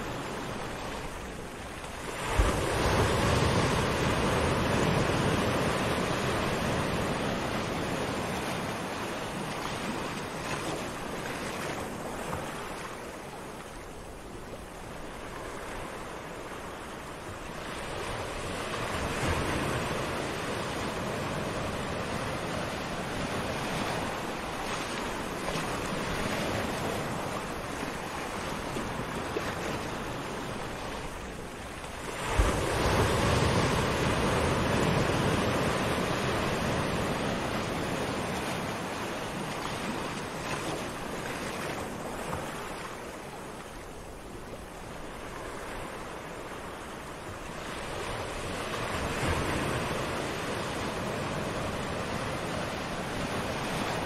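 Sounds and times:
small waves washing on beach: 0.0 - 54.0.

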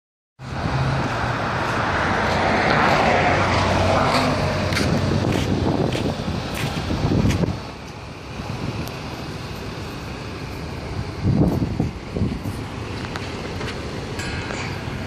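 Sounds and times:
vehicle passing by: 0.4 - 7.7.

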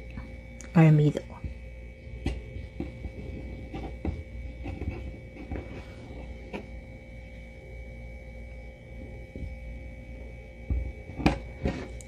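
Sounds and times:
background hum with faint whine: 0.0 - 12.0.

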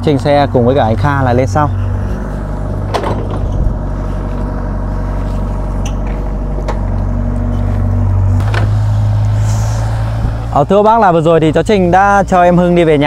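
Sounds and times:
excavator diesel engine running: 0.0 - 13.0.

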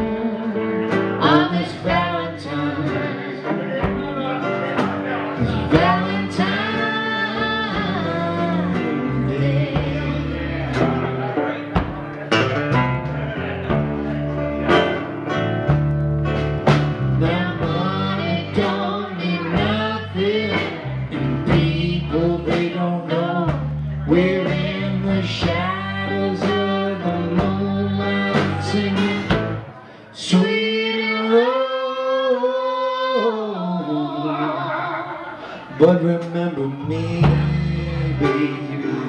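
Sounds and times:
blues guitar solo: 0.0 - 29.9
drums: 0.0 - 31.5, 34.9 - 39.0
bass guitar: 0.0 - 39.0.

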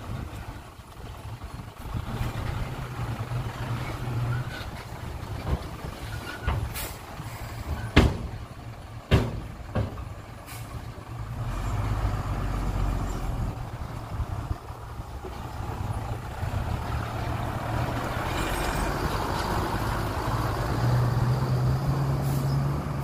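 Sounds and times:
truck diesel engine running: 0.0 - 23.0
knocks: 7.8 - 8.4, 9.1 - 10.1.

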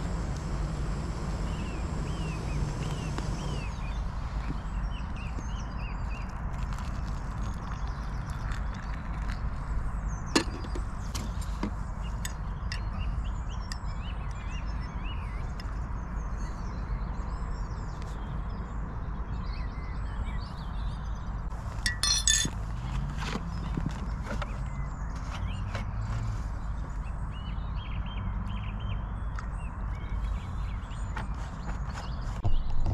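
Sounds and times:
low steady rumble: 0.0 - 8.2
spoon clinking in a mug: 21.8 - 22.6.

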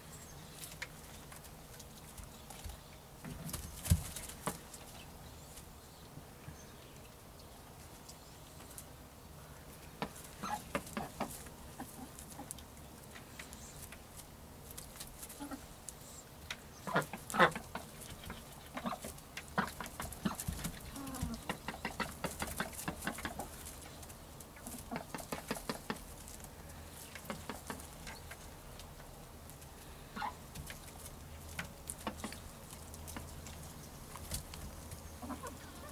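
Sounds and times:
rustling and clicking in straw: 0.4 - 5.7, 9.8 - 35.9
ducks calling: 16.8 - 23.6, 35.1 - 35.9.

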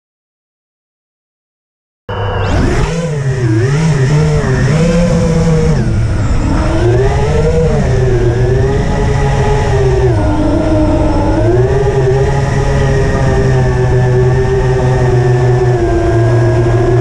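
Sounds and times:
quadcopter motors whining: 2.1 - 17.0.

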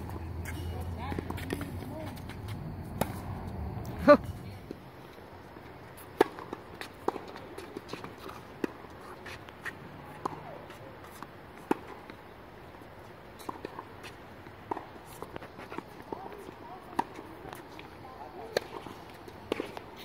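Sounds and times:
balls bouncing on hard court: 0.0 - 3.8
tennis balls struck with rackets: 0.0 - 4.8, 6.1 - 9.4, 16.1 - 17.8.

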